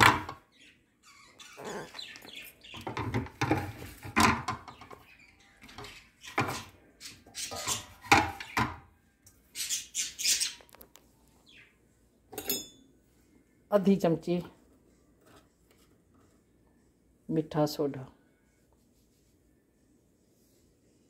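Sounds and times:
pet birds chirping: 0:00.0 - 0:03.7, 0:04.5 - 0:08.8, 0:09.4 - 0:12.0
dishes and utensils clattering: 0:02.7 - 0:05.0, 0:05.6 - 0:08.8, 0:12.3 - 0:12.9.

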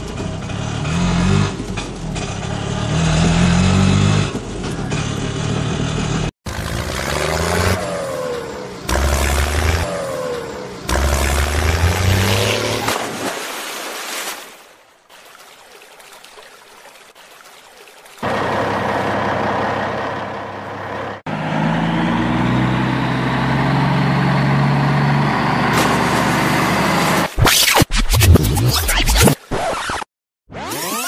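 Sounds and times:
truck engine: 0:00.0 - 0:13.1, 0:18.2 - 0:27.4
water splashing and rushing: 0:06.5 - 0:20.5, 0:25.6 - 0:27.4.

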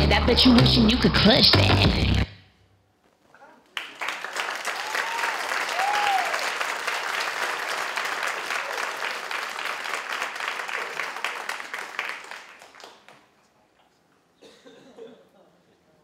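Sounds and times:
audience applauding: 0:03.7 - 0:13.4.

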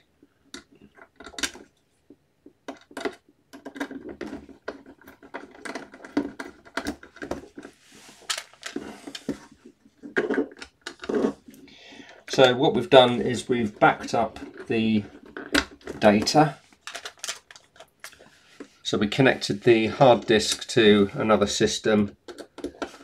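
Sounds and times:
scraping and rubbing on plastic: 0:03.0 - 0:11.7, 0:12.3 - 0:21.1.

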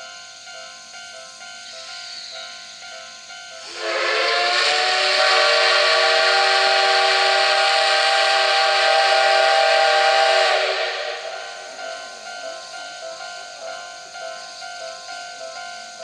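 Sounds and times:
steam whistle blast: 0:03.6 - 0:12.6.

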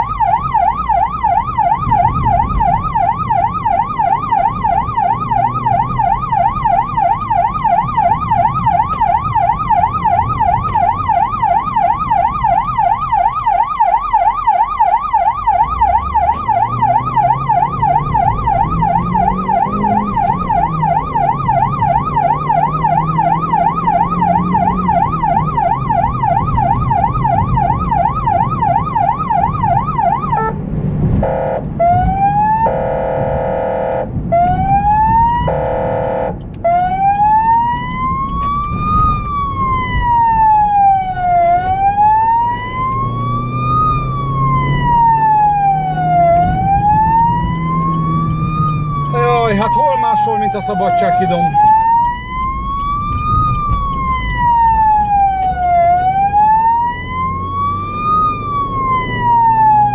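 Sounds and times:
electronic siren: 0:00.0 - 0:30.6, 0:31.2 - 0:59.9
car engine: 0:00.0 - 0:59.9
horn tone blasts: 0:30.2 - 0:30.6, 0:31.2 - 0:36.4.

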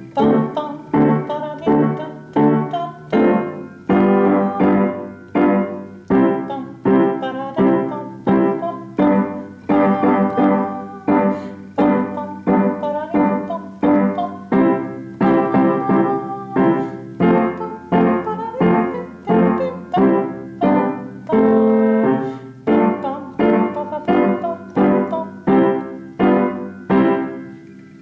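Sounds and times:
piano playing tango chords: 0:00.0 - 0:28.0.

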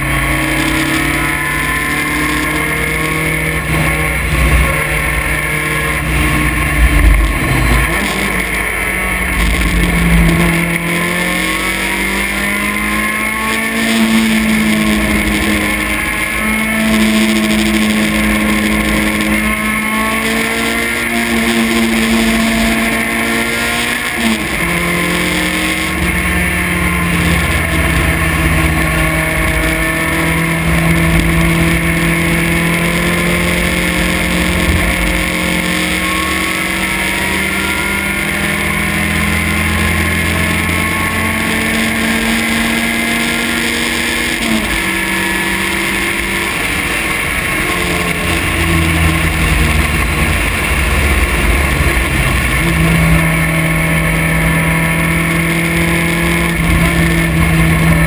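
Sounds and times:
race car engine running hard: 0:00.0 - 0:58.0
low rumble: 0:06.0 - 0:10.7.

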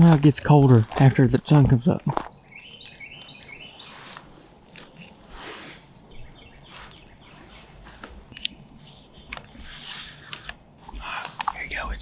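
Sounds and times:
faint bird chirping: 0:02.2 - 0:12.0
clothing rustling: 0:06.6 - 0:11.5.

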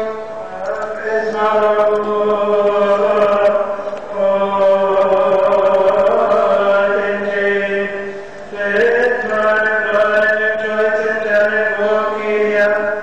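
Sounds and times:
priest chanting solo: 0:00.0 - 0:13.0.

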